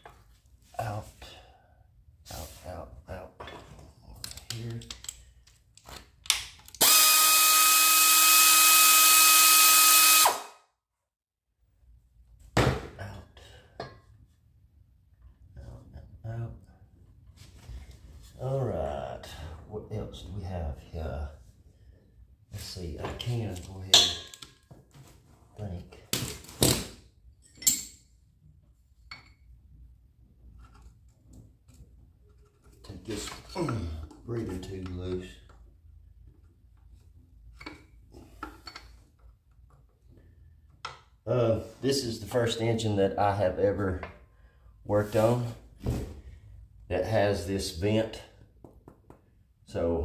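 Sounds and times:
handling clicks and knocks: 0:04.2 - 0:06.8.

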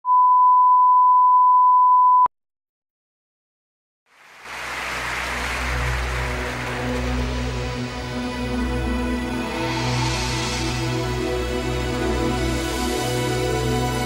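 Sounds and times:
intro music: 0:04.2 - 0:14.0.

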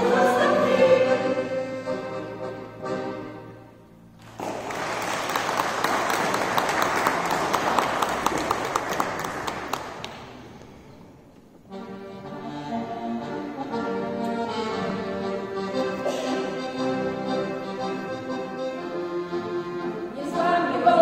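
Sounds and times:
folk band playing: 0:00.0 - 0:03.8, 0:11.6 - 0:21.0
audience clapping: 0:04.2 - 0:10.8.

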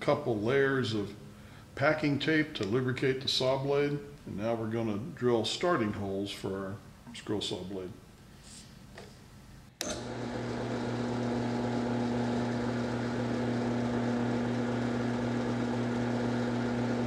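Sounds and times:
drill press motor hum: 0:09.8 - 0:17.0.

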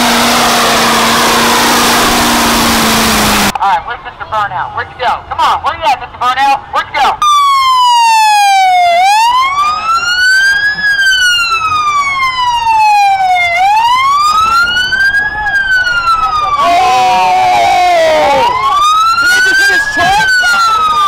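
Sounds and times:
police siren wailing: 0:00.0 - 0:03.5, 0:07.2 - 0:21.0
second siren tone: 0:00.0 - 0:03.5.

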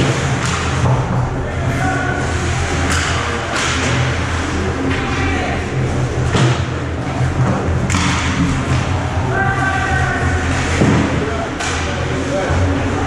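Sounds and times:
pucks and sticks knocking boards: 0:00.0 - 0:01.4, 0:02.2 - 0:05.5, 0:06.2 - 0:09.1, 0:10.0 - 0:12.3
low hum: 0:00.0 - 0:13.0
murmur of voices: 0:00.0 - 0:13.0.

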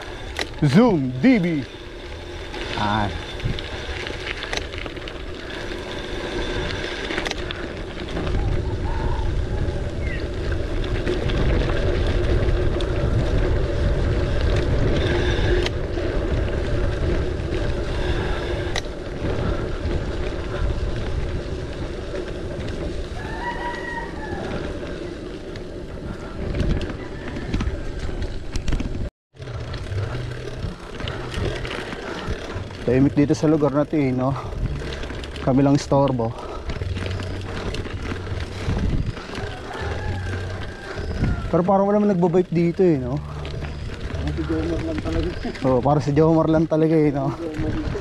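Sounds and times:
bike clicks and knocks: 0:00.0 - 0:00.9, 0:01.5 - 0:08.6
bike tyres rattling on dirt: 0:00.0 - 0:48.0
wind on microphone: 0:05.4 - 0:33.2, 0:36.3 - 0:41.7, 0:47.2 - 0:48.0
rooster crowing: 0:23.1 - 0:25.1, 0:26.9 - 0:28.2, 0:39.2 - 0:41.6.

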